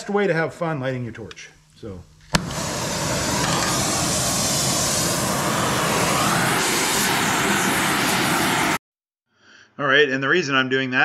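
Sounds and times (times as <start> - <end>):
gas igniting with a pop: 1.6 - 8.8
torch flame hissing: 1.6 - 8.8.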